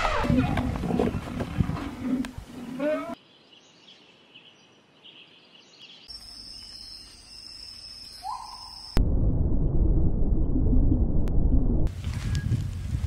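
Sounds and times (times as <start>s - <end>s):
faint bird chirps: 3.2s - 9.0s
loud low rumble: 9.0s - 11.9s.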